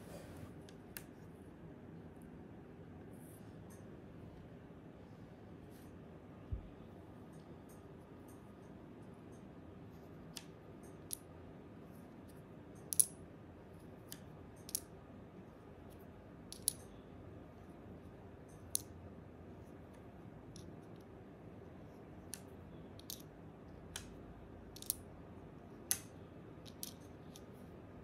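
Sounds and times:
small tiles clicking together: 12.8 - 13.2, 14.1 - 14.9, 16.5 - 17.0, 22.3 - 23.3, 24.0 - 25.0, 25.9 - 27.6.

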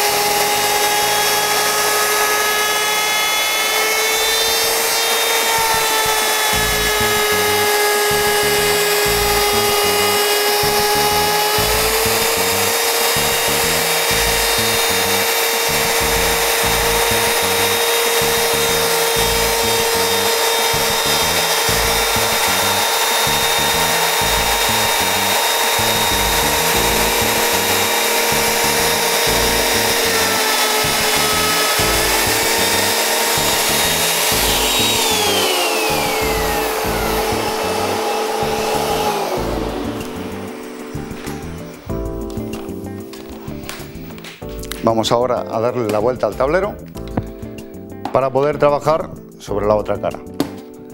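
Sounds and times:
router motor whine: 0.0 - 44.1
vacuum running: 0.0 - 44.4.

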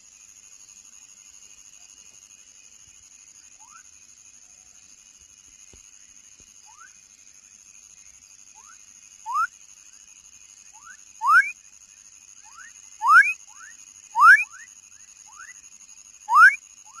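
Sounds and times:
frog rising whistle calls: 8.6 - 9.5, 10.8 - 11.5, 12.5 - 14.7, 16.3 - 17.0.

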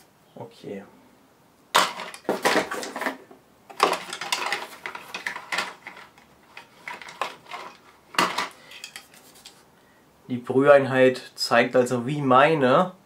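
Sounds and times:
plastic parts clattering together: 1.8 - 9.2.

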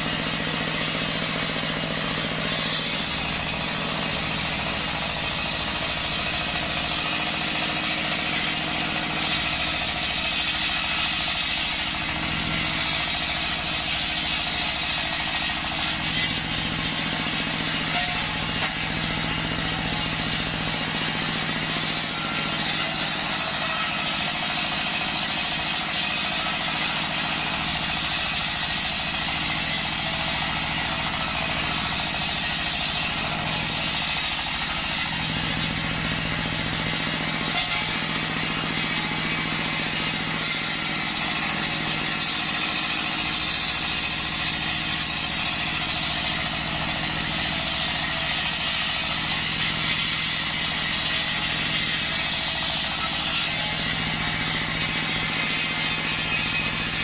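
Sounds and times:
diesel engine drone: 0.0 - 57.0
saw blade hissing through wood: 0.0 - 57.0.

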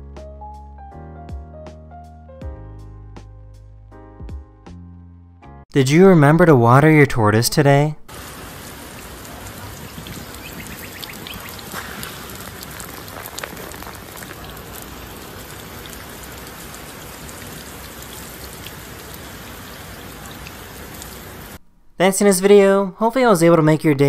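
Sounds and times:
water spray hissing on shell: 8.1 - 21.6.

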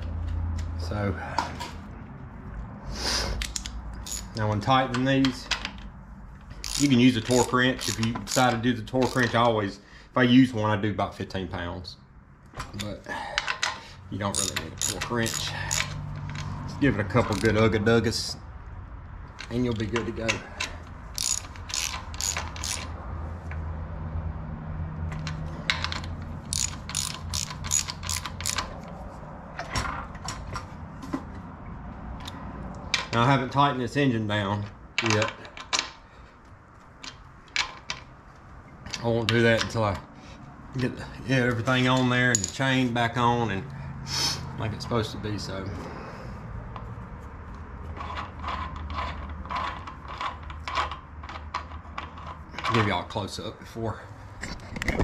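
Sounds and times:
socket ratchet clicking: 3.4 - 5.8, 6.5 - 9.4, 13.4 - 16.6, 17.2 - 17.6, 19.4 - 23.0, 25.1 - 29.0.

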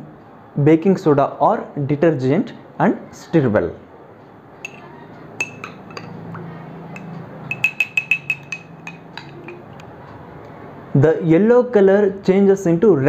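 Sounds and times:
spoon clinking in glass: 4.6 - 9.7.

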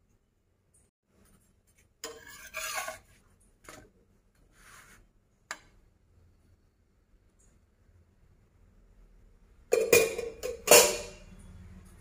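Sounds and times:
metal spatula scraping griddle: 2.0 - 3.2.

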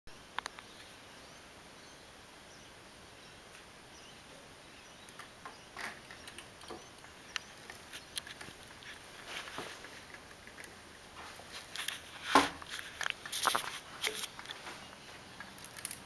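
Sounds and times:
faint background hiss: 0.1 - 16.0
bird chirps: 0.4 - 8.2.

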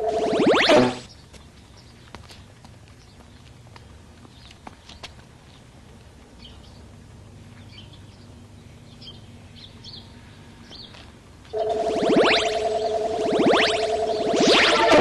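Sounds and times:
low steady hum: 11.5 - 15.0.

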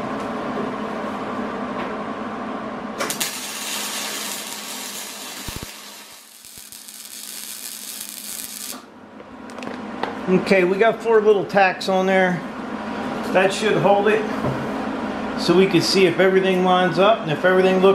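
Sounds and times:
steady hum: 2.2 - 16.0
welder crackling hiss: 3.0 - 8.9.

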